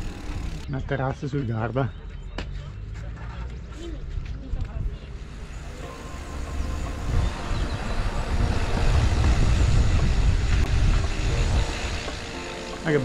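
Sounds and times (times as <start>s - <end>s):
bike tyres rumbling on cobblestones: 0.0s - 0.7s, 6.7s - 13.0s
wind buffeting microphone: 6.9s - 12.2s.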